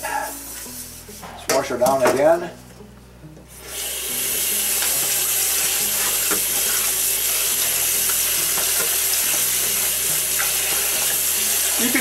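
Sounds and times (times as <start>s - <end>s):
faucet water splashing on pan: 3.6s - 12.0s.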